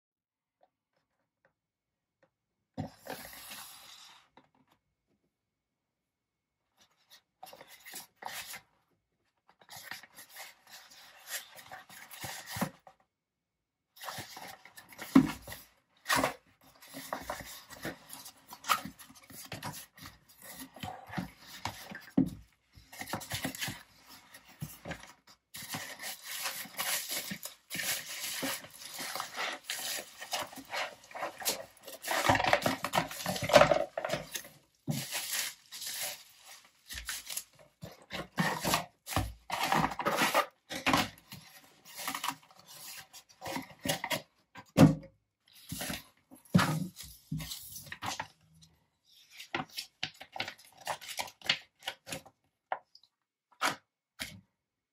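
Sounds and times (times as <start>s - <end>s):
cardboard rustling and rubbing: 14.0s - 44.2s
bubble wrap crinkling: 25.6s - 37.8s.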